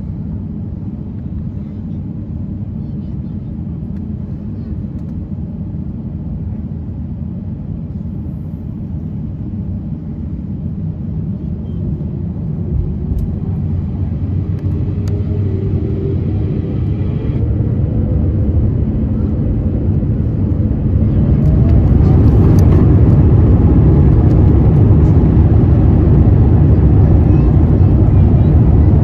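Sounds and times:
jet engines spooling up: 10.6s - 29.0s.

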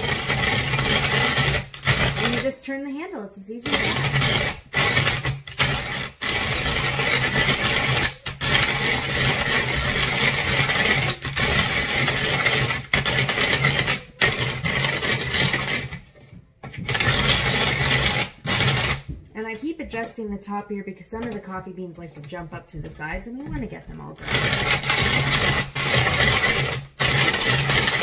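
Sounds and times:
coffee beans grinding rattle: 0.0s - 2.6s, 3.6s - 19.1s, 24.2s - 28.0s.

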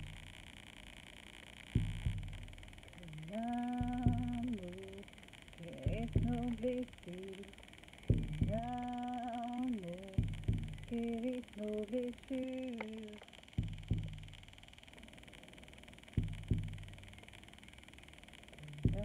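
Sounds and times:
frame drum double beats: 1.8s - 2.6s, 5.9s - 6.6s, 8.1s - 8.8s, 10.2s - 10.9s, 13.6s - 14.4s, 16.2s - 17.0s
woman humming: 3.0s - 7.6s, 8.4s - 13.2s, 18.6s - 19.0s.

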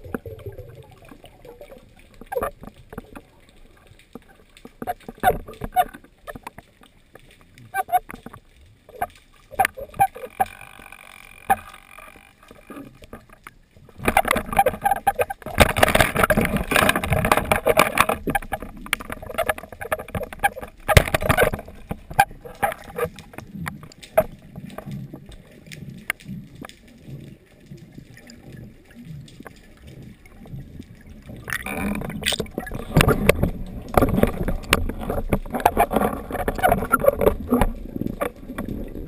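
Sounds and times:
water rushing and gurgling: 0.0s - 39.0s
clicks and knocks: 7.8s - 25.0s.

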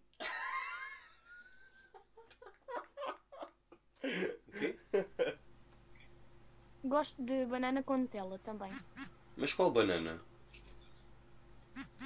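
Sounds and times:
man laughing: 0.2s - 5.4s.

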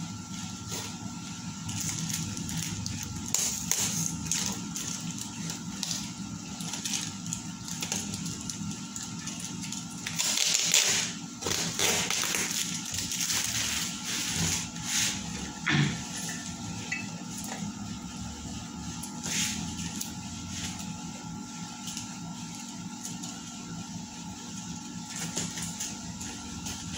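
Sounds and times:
plastic and cardboard crinkling: 0.4s - 15.3s
knife cutting parcel: 10.1s - 15.2s.

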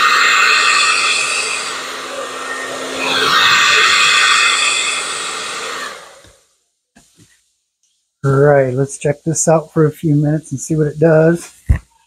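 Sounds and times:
blow dryer running: 0.0s - 6.5s.

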